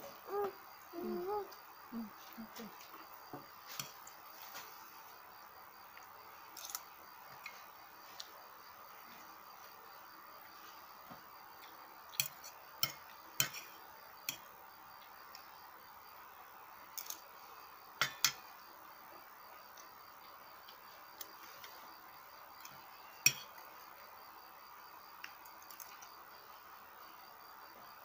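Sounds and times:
faint insect chirring: 0:00.0 - 0:28.0.

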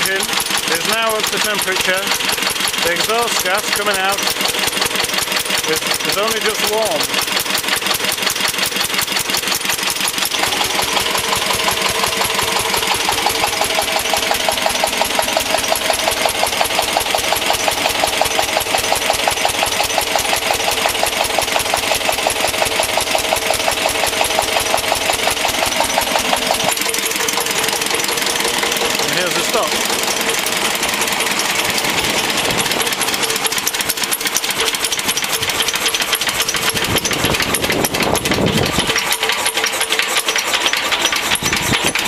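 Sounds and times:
diesel generator chuffing: 0:00.0 - 0:42.0
steady whine: 0:10.0 - 0:42.0.

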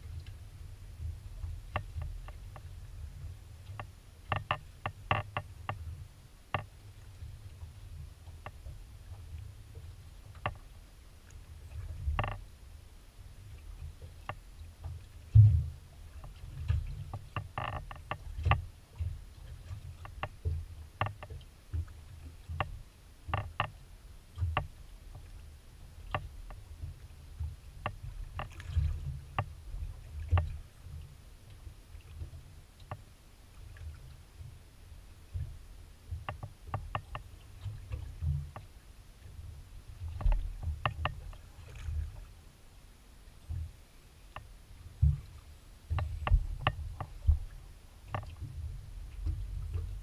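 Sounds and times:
water rumbling against boat hull: 0:00.0 - 0:42.5, 0:43.2 - 0:50.0
sharp knocks and clicks: 0:03.7 - 0:05.8, 0:36.1 - 0:37.3, 0:40.1 - 0:41.4, 0:45.9 - 0:47.5.

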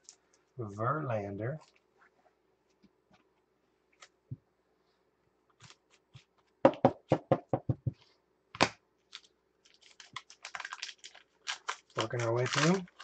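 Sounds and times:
papery rustling: 0:09.1 - 0:13.0.

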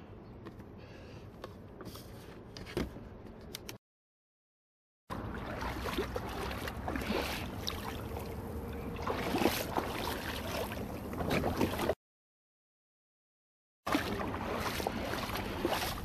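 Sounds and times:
water splashing around kayak: 0:05.1 - 0:12.0, 0:13.9 - 0:16.0.

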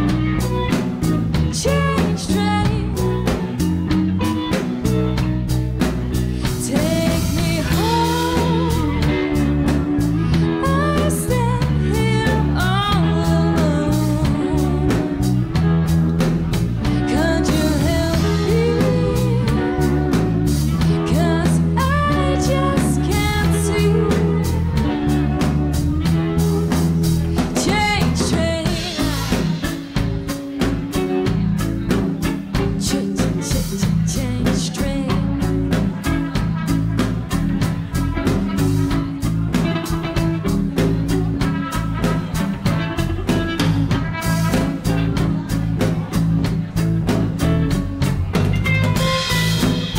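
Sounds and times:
woman singing: 0:00.0 - 0:03.7, 0:06.3 - 0:16.0, 0:16.8 - 0:29.8, 0:32.6 - 0:36.5
live band playing: 0:00.0 - 0:49.9.

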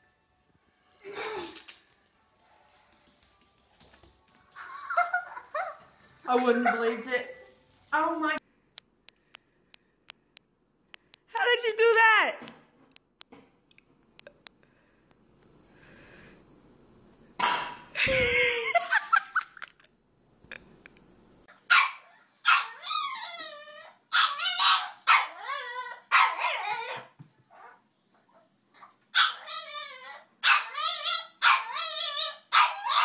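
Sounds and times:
small dog barking: 0:21.7 - 0:22.8, 0:24.2 - 0:25.4, 0:26.1 - 0:27.1, 0:31.4 - 0:31.8, 0:32.5 - 0:33.0.

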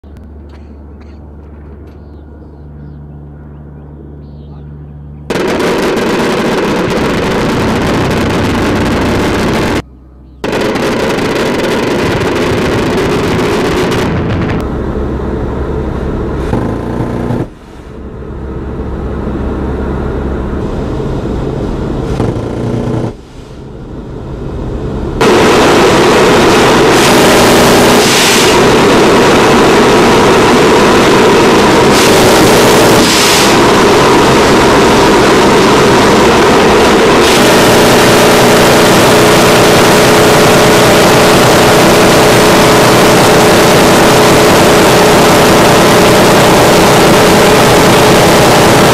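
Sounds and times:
aircraft engine and slipstream: 0:00.0 - 0:48.9
rotary cannon firing: 0:05.3 - 0:09.8, 0:10.4 - 0:14.6, 0:16.4 - 0:17.6, 0:22.0 - 0:23.2, 0:25.2 - 0:48.9.

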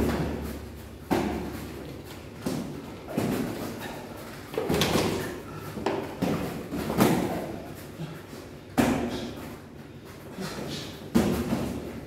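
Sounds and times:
boxing gloves thudding: 0:00.0 - 0:07.7, 0:08.7 - 0:09.4, 0:11.1 - 0:12.0.

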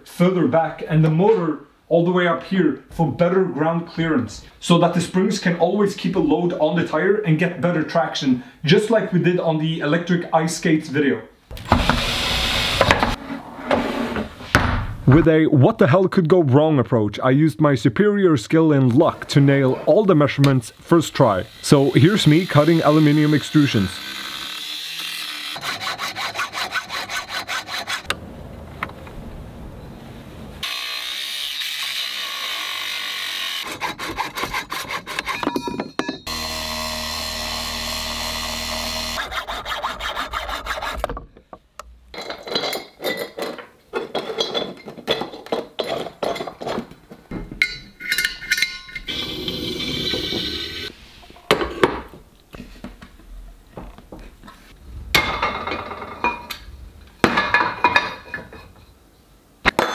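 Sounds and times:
angle grinder cutting metal: 0:21.4 - 0:28.1, 0:30.6 - 0:35.5, 0:36.3 - 0:40.1, 0:49.0 - 0:50.9
metal parts clicking and knocking: 0:42.2 - 0:49.1.

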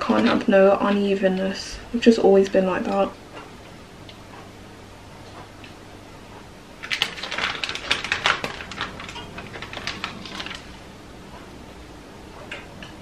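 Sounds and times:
plastic packaging crackling: 0:06.8 - 0:10.9.

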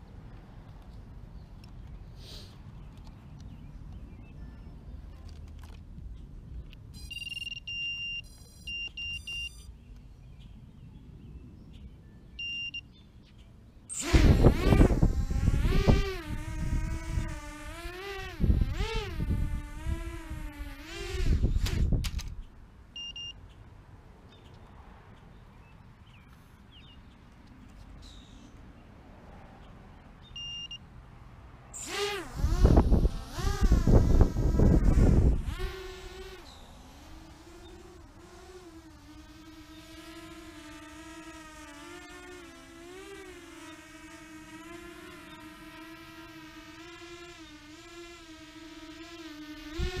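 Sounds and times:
faint outdoor background: 0:00.0 - 0:50.0
high-pitched electronic beeps: 0:07.0 - 0:09.7.

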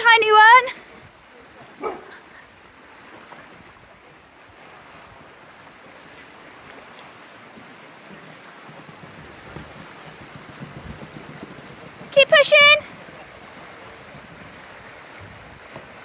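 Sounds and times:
river water rushing: 0:00.0 - 0:16.0
wind buffeting microphone: 0:07.5 - 0:16.0.

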